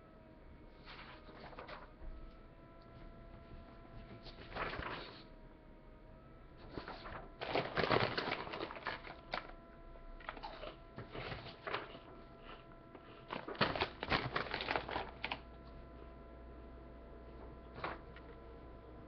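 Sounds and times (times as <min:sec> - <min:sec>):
paper rustling: 0:00.8 - 0:02.0, 0:03.1 - 0:05.3, 0:06.6 - 0:09.6, 0:10.2 - 0:15.8, 0:17.4 - 0:18.4
plastic chip bag crinkling: 0:04.4 - 0:05.2, 0:06.7 - 0:09.6, 0:10.2 - 0:15.6.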